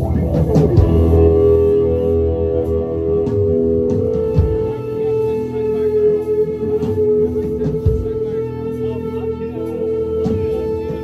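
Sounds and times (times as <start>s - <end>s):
electric guitar drone: 0.0s - 11.0s
sliding wailing guitar tones: 0.0s - 11.0s.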